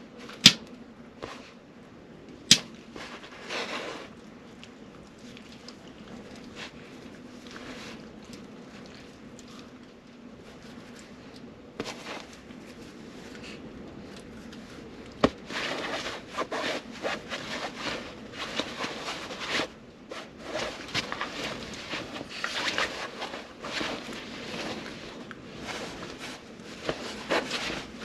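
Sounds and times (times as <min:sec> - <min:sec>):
duvet rustling and scuffing: 0:02.9 - 0:04.2, 0:11.8 - 0:13.6, 0:15.2 - 0:28.0.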